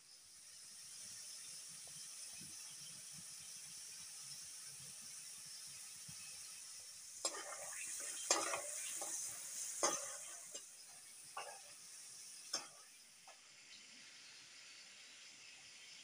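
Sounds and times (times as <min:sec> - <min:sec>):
food sizzling in a frying pan: 0:00.0 - 0:16.0
spatula scraping and knocking pan: 0:07.2 - 0:11.8.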